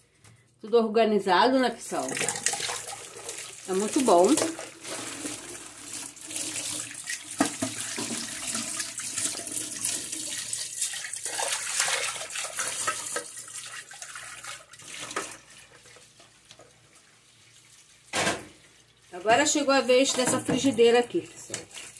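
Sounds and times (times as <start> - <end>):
tap water splashing into sink: 2.0 - 15.5, 18.1 - 18.6, 21.5 - 21.9.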